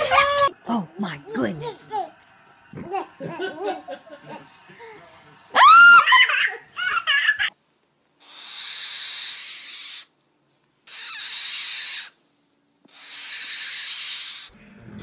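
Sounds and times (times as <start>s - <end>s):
toddler squealing laughter: 5.6s - 7.5s.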